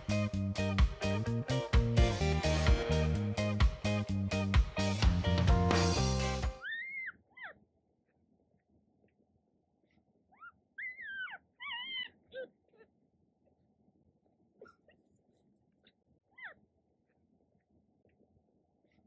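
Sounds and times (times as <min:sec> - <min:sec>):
puppies squeaking and whimpering: 0:10.4 - 0:12.5, 0:16.4 - 0:16.6.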